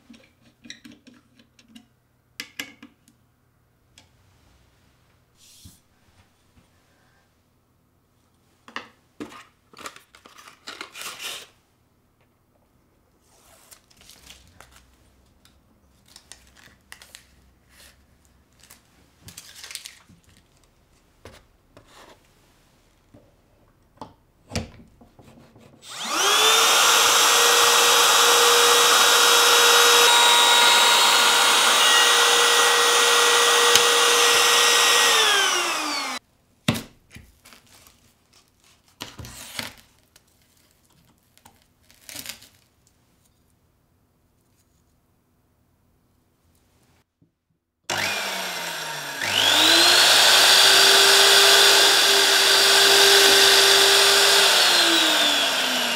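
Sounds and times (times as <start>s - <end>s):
trim router whining: 25.8s - 36.2s, 47.9s - 55.9s.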